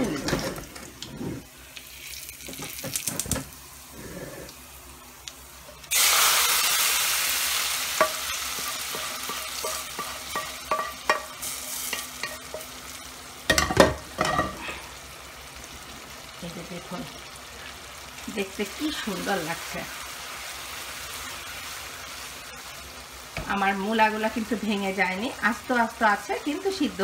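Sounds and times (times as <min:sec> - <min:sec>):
hot oil sizzling in curry: 0:00.0 - 0:27.0
pans knocking: 0:08.0 - 0:11.3, 0:13.5 - 0:14.6.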